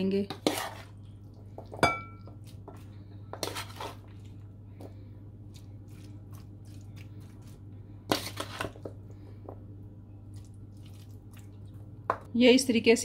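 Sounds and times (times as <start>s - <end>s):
steady low hum: 0.0s - 13.0s
metal spoon scraping metal pan: 0.2s - 1.0s
soft wet squishes: 0.5s - 12.1s.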